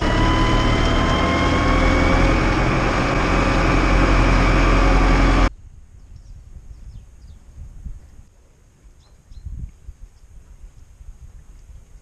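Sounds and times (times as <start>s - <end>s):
tractor engine running: 0.0s - 5.5s.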